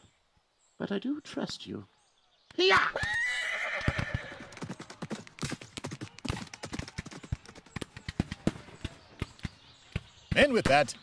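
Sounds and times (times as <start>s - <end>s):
horse whinnying: 2.7s - 4.5s
horse hoofbeats clopping: 3.0s - 9.4s.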